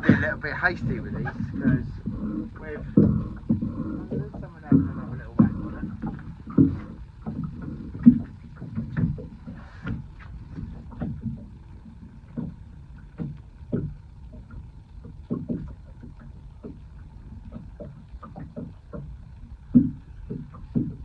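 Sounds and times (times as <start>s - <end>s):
water slapping against boat hull: 0.0s - 21.0s.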